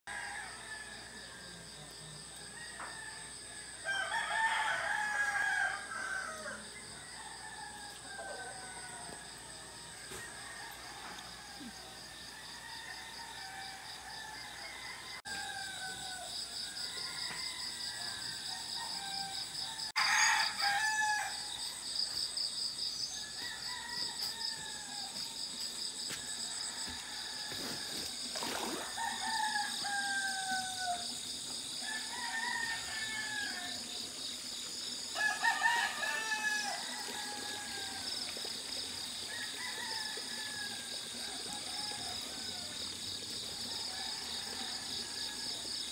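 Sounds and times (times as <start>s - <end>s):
insect chorus: 0.1s - 45.9s
roosters crowing: 2.6s - 21.6s, 23.1s - 25.3s, 26.4s - 34.0s, 35.1s - 38.2s.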